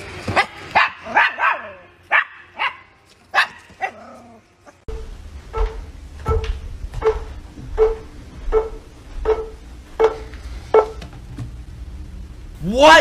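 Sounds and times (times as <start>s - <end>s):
small dog barking: 0.3s - 4.2s
low hum with faint pulse: 3.8s - 12.8s.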